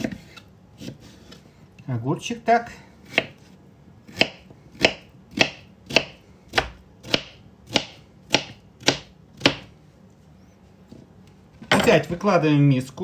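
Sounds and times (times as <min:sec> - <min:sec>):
knife chopping on cutting board: 0:00.0 - 0:01.4, 0:03.0 - 0:03.5, 0:04.1 - 0:09.7.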